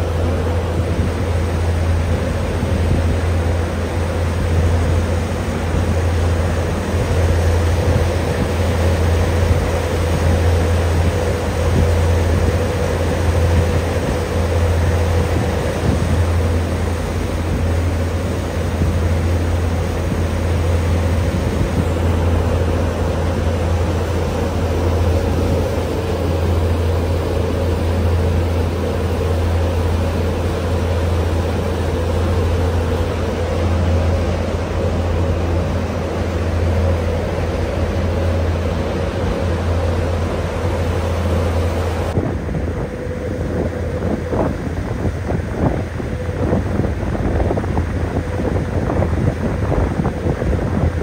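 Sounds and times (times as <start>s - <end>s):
boat engine drone: 0.0s - 51.0s
steady hum: 0.0s - 51.0s
water wake rushing: 0.0s - 51.0s
wind: 0.0s - 51.0s.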